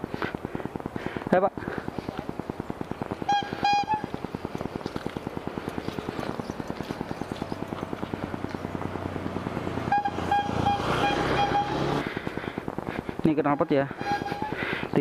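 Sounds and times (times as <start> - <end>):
scooter engine idling: 1.4 - 10.8
short high beeps: 10.0 - 11.8.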